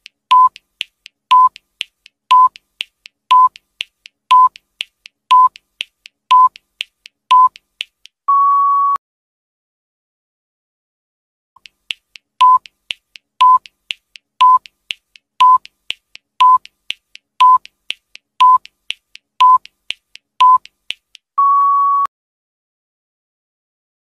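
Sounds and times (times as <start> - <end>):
timer ticking: 0.0 - 8.2, 11.6 - 21.3
short timer beeps: 1.3 - 1.6, 2.3 - 2.6, 3.3 - 3.6, 4.3 - 4.6, 5.3 - 5.6, 6.3 - 6.6, 7.3 - 7.6, 12.4 - 12.7, 13.4 - 13.7, 14.4 - 14.7, 15.4 - 15.7, 16.4 - 16.7, 17.4 - 17.7, 18.4 - 18.7, 19.4 - 19.7, 20.4 - 20.7
long higher beep: 21.4 - 22.1.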